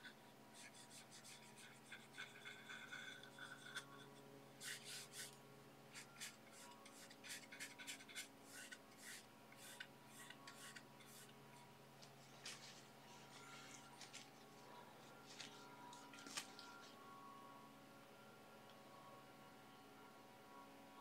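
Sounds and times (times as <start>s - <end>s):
brush swishing paint on panel: 5.9s - 11.3s.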